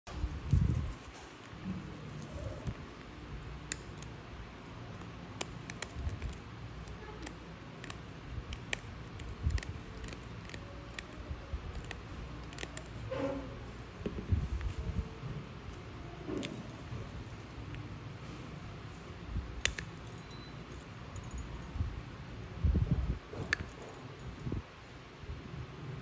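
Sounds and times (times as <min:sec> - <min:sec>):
metal tool snipping clicks: 0:03.6 - 0:04.2, 0:05.0 - 0:12.9, 0:19.6 - 0:20.4.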